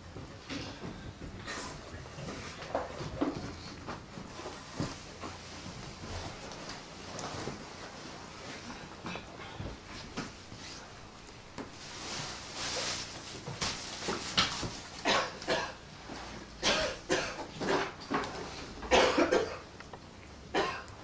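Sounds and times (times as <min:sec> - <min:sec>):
person coughing: 0:15.0 - 0:15.8, 0:16.6 - 0:17.9, 0:18.9 - 0:19.6, 0:20.5 - 0:20.9.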